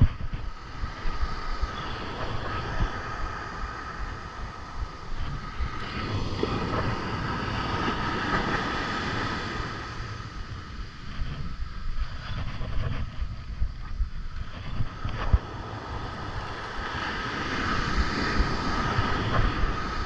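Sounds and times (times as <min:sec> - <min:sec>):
surf breaking on beach: 0:00.0 - 0:20.0
wind buffeting microphone: 0:00.0 - 0:20.0.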